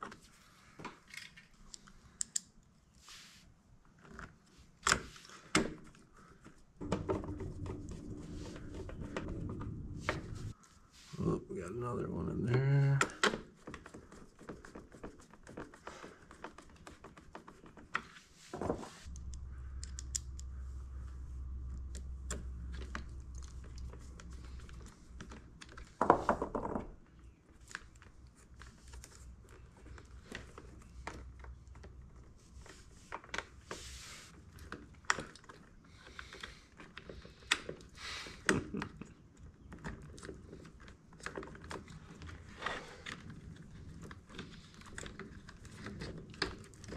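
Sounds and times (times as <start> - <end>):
low steady hum: 6.8 - 13.1, 19.1 - 26.0.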